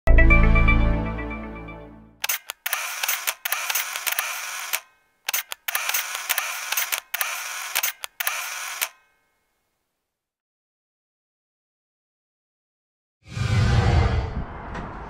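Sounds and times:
intro music: 0.1s - 2.2s
camera shutter clicks: 2.2s - 9.1s.

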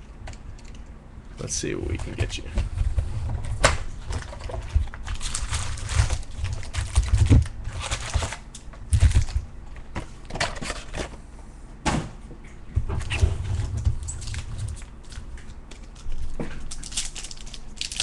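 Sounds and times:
cardboard and wrappers crinkling: 4.0s - 9.4s, 14.0s - 18.0s.

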